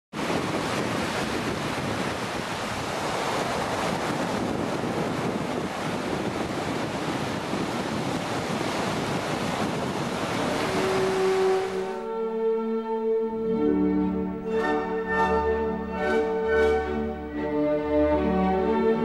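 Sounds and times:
strong wind: 0.1s - 12.0s
sea surf washing onto beach: 0.1s - 12.1s.

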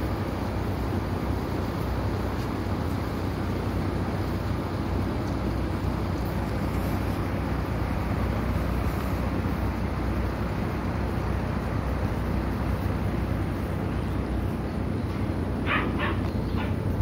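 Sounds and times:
puppies yelping: 15.6s - 17.0s.

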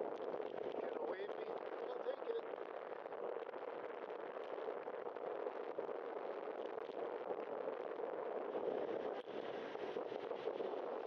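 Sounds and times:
wind on microphone: 2.6s - 11.0s.

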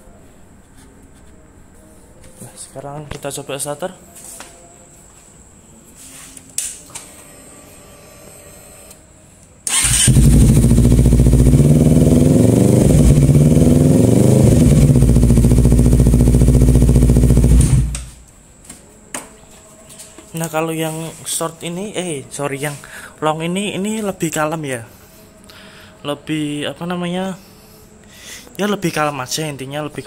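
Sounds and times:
motorcycle engine revving: 9.7s - 18.2s.

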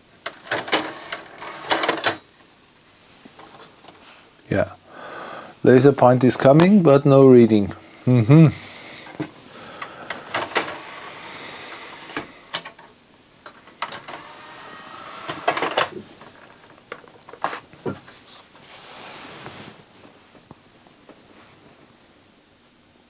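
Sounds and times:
soft disc whirring: 8.7s - 22.0s.

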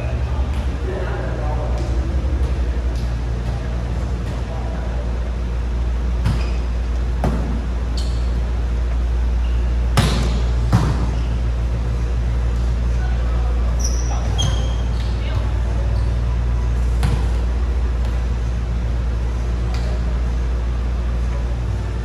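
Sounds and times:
low hum: 0.0s - 22.0s
sneakers squeaking on court: 6.2s - 11.6s, 13.7s - 18.2s.

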